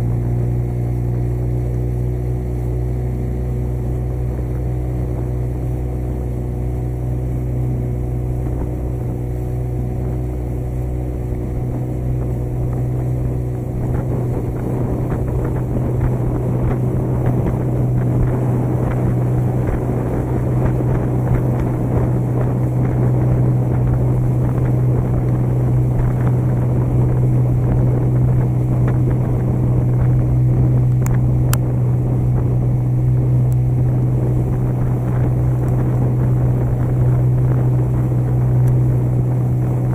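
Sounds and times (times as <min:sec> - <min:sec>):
motorboat engine running: 0:00.0 - 0:39.9.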